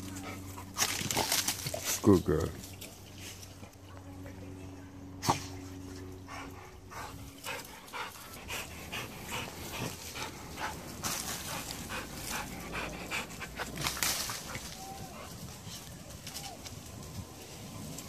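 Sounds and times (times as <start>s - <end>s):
dog panting: 5.3s - 15.7s.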